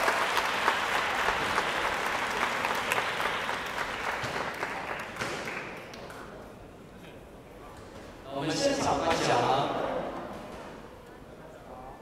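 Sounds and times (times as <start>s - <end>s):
crowd applauding: 0.0s - 6.4s.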